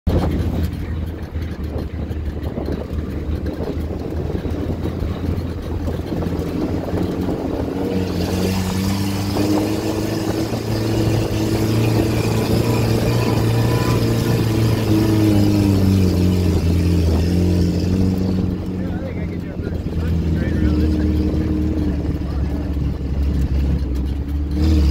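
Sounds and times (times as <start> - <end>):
off-road vehicle engine running: 0.0 - 24.9
rushing noise: 3.5 - 18.9.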